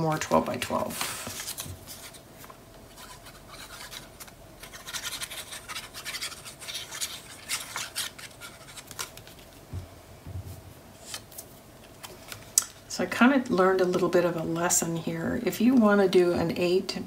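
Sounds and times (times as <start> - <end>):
paper rustling and rubbing: 0.2 - 9.6.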